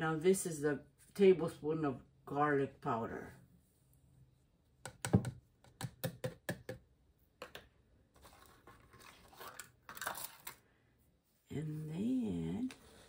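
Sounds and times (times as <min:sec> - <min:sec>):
plastic cup tapping on plastic rim: 0:04.8 - 0:07.6.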